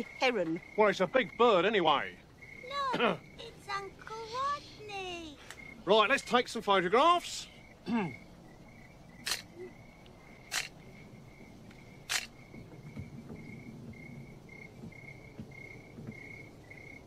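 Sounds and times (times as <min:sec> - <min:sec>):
insects chirping: 0:00.0 - 0:17.0
camera shutter clicks: 0:09.2 - 0:09.5, 0:10.5 - 0:10.7, 0:12.1 - 0:12.3.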